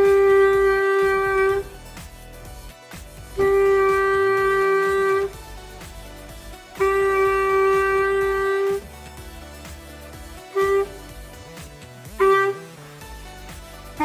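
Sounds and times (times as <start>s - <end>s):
clarinet long held notes: 0.0s - 1.8s, 3.4s - 5.4s, 6.7s - 8.9s, 10.5s - 11.2s, 12.1s - 12.8s.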